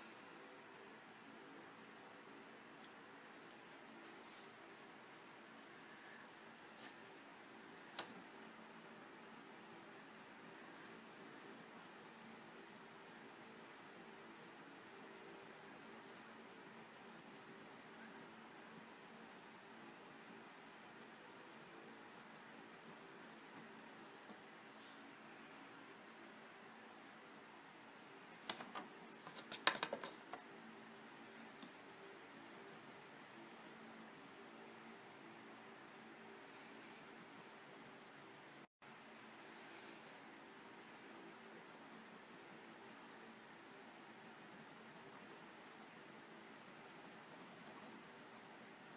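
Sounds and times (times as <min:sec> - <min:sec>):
faint steady hum: 0:00.0 - 0:48.9
colored pencil scratching on paper: 0:08.7 - 0:23.7, 0:31.6 - 0:34.4, 0:36.6 - 0:38.0, 0:41.5 - 0:48.9.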